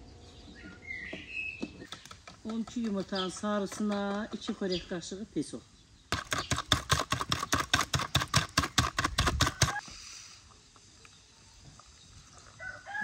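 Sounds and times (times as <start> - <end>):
whisk clicking against plastic bowl: 1.9 - 4.3, 6.1 - 9.8.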